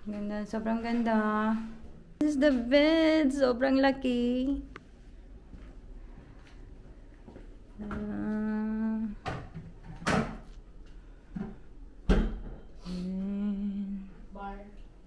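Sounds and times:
person humming low notes: 0:12.9 - 0:14.3.

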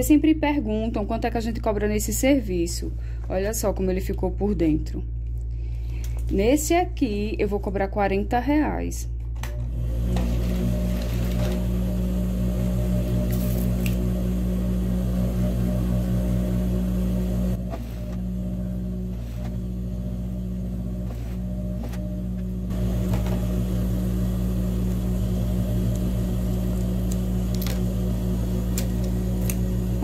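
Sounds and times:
sewing machine motor hum: 0:09.5 - 0:30.0.

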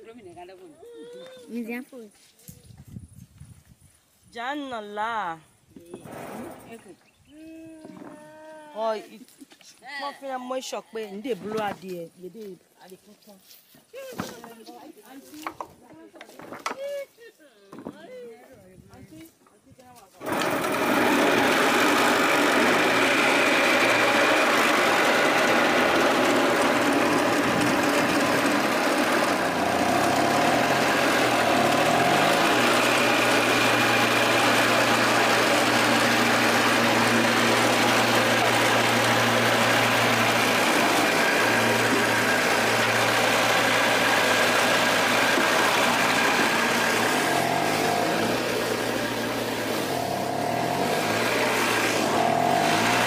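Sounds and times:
small engine running: 0:20.2 - 0:53.0.

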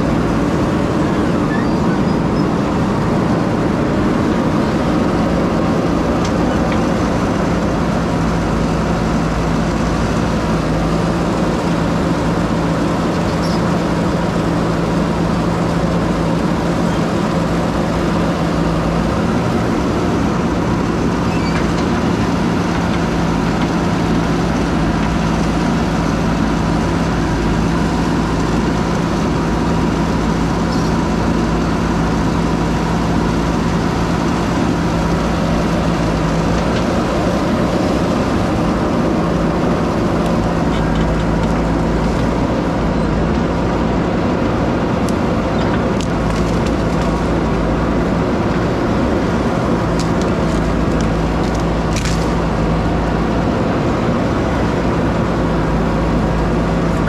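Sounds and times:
diesel engine running loudly: 0:00.0 - 0:57.0.

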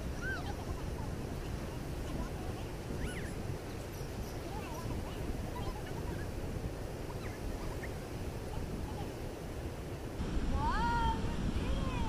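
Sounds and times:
ocean surf: 0:00.0 - 0:12.0
wind: 0:00.0 - 0:12.0.

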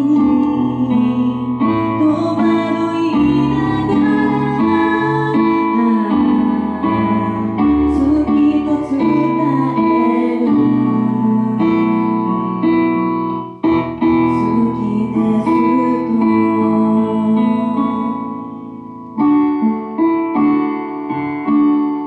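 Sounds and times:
woman singing into microphone: 0:00.0 - 0:13.0, 0:14.2 - 0:18.4
instrumental accompaniment: 0:00.0 - 0:22.0.

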